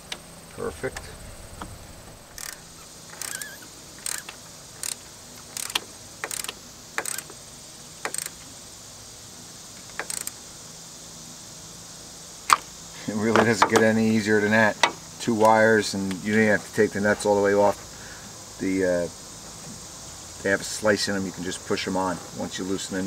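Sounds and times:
ratchet wrench clicking: 0:02.4 - 0:07.4, 0:08.0 - 0:08.4, 0:09.8 - 0:10.4.

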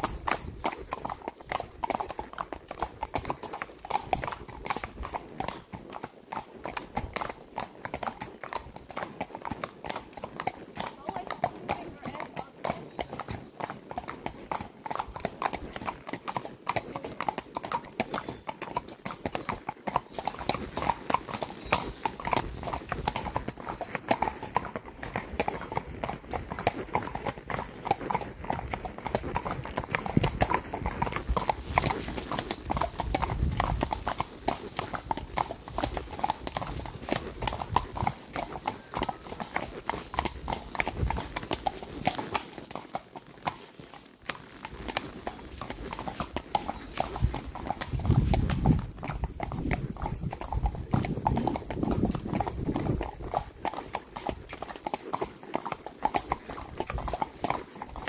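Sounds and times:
horse hooves on wet asphalt: 0:00.0 - 0:58.0.

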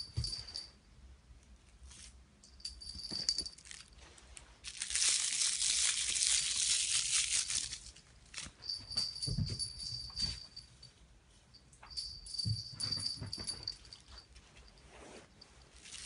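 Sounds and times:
soft plastic rustling: 0:03.0 - 0:09.6, 0:13.4 - 0:16.0
plastic crinkling: 0:03.2 - 0:08.6, 0:15.8 - 0:16.0.

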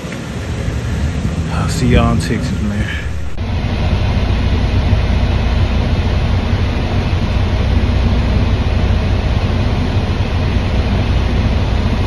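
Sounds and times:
truck engine idling: 0:00.0 - 0:12.0
wind against truck cab: 0:00.0 - 0:12.0.

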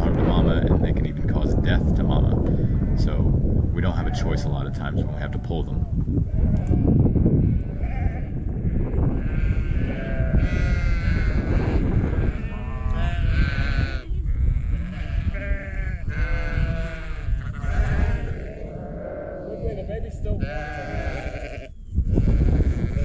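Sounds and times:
wind rumble on microphone: 0:00.0 - 0:23.0
sheep bleating: 0:06.3 - 0:23.0.

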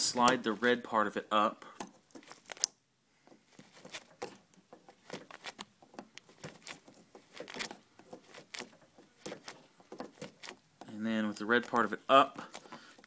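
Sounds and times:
screwdriver scraping plastic connector: 0:03.3 - 0:13.0.

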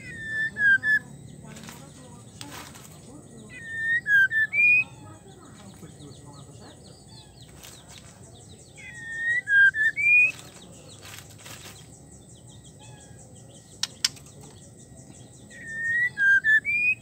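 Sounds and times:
bird whistling phrase: 0:03.5 - 0:05.2, 0:08.8 - 0:10.5, 0:15.5 - 0:17.0
sharp clicks: 0:13.7 - 0:14.6.

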